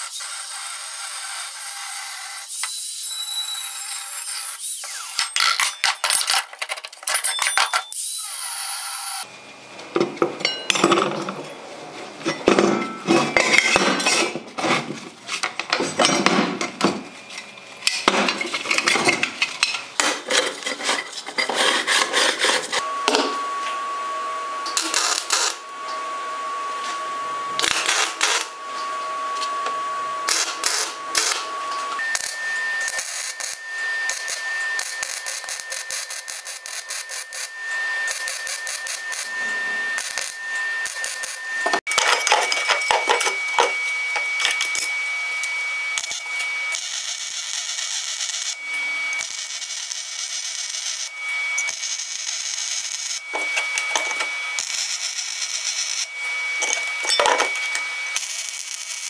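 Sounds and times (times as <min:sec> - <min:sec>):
steady high whine: 0:22.8 - 0:49.9
welder arc crackling: 0:24.7 - 0:25.7, 0:27.6 - 0:28.5, 0:30.3 - 0:41.9, 0:42.9 - 0:51.1, 0:51.7 - 0:56.9, 0:57.6 - 0:59.0.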